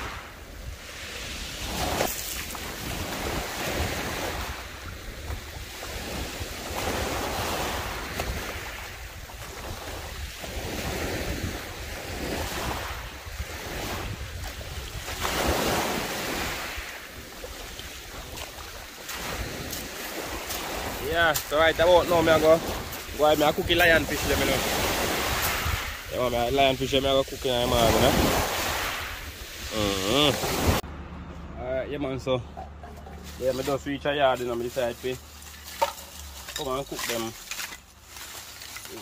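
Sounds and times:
waves washing on pebble beach: 0.0s - 30.8s, 33.3s - 39.0s
wind rumbling on microphone: 0.0s - 30.8s.

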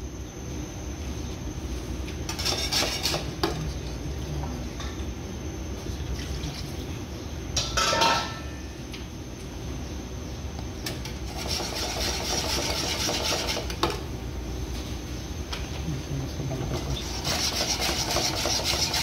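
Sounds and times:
utensils scraping frying pan: 2.3s - 3.3s, 11.2s - 13.8s, 16.7s - 19.0s.

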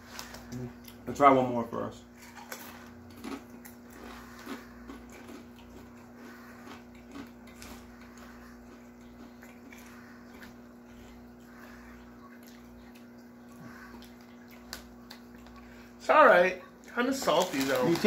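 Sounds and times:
potato chips crunching: 2.2s - 11.2s, 16.8s - 18.0s.

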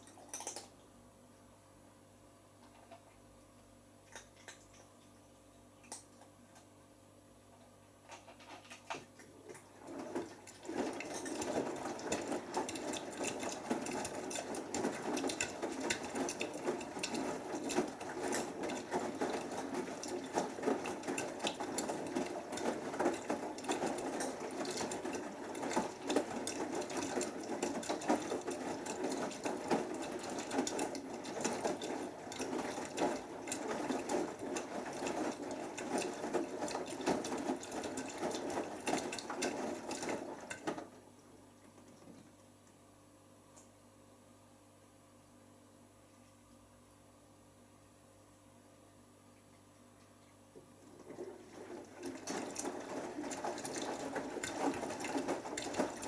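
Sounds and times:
washing machine churning and sloshing: 7.9s - 42.6s, 50.4s - 56.0s.

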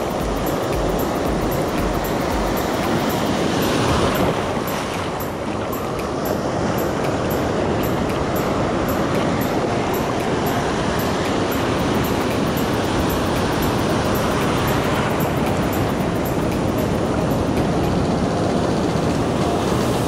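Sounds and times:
surf breaking and rushing: 0.0s - 20.0s.

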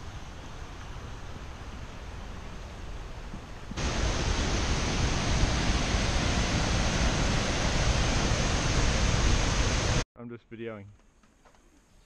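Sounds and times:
waterfall rushing: 3.8s - 10.0s.

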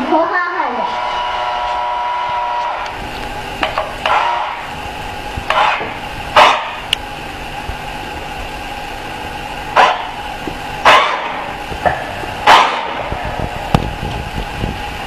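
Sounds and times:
dog barking: 9.8s - 10.1s, 10.9s - 11.4s, 12.4s - 13.0s.

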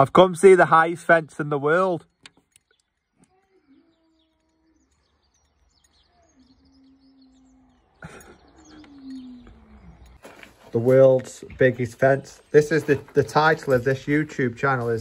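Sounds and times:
baby cooing: 8.6s - 10.0s.

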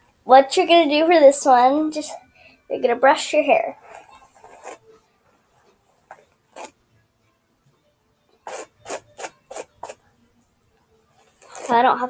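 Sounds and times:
hairbrush swishing through hair: 3.8s - 4.9s, 6.1s - 6.7s, 8.4s - 10.0s, 11.2s - 11.9s.

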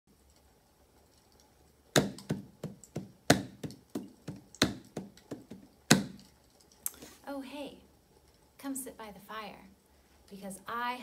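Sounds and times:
hand drum beat: 2.0s - 6.2s.

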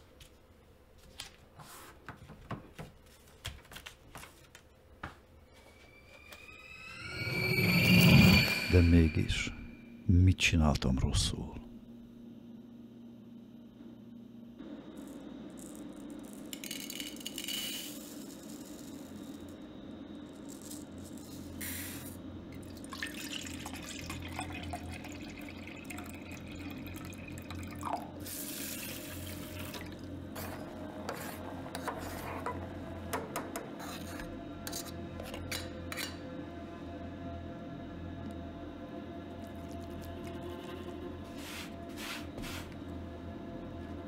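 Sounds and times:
low steady hum: 18.2s - 44.0s
water pouring into plastic jug: 22.6s - 30.0s
metal spoon scraping steel bowl: 33.8s - 36.2s.

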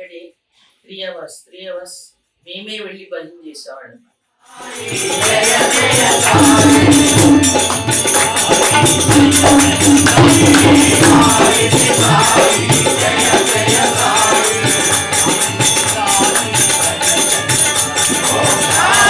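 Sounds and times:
group singing: 4.4s - 19.0s
jingling percussion: 4.4s - 19.0s
hand drum beat: 4.6s - 19.0s.

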